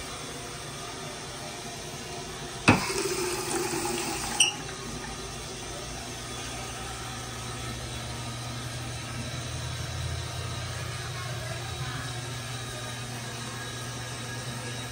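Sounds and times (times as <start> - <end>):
water running into sink basin: 2.7 - 5.6.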